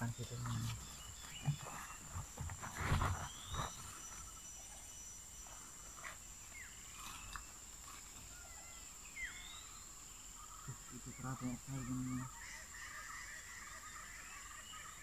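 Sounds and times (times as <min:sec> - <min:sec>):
rustling through undergrowth: 0:00.0 - 0:09.9
bird calls: 0:00.0 - 0:15.0.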